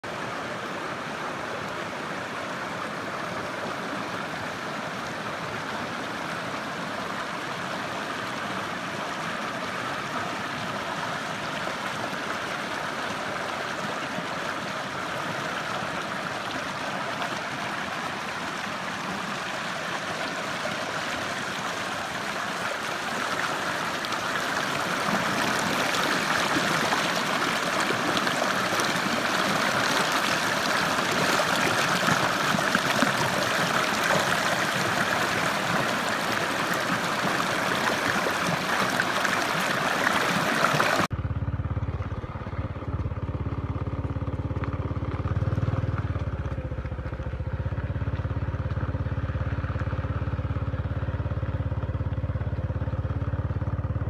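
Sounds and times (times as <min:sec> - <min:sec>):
stream rushing over rocks: 0:00.0 - 0:41.1.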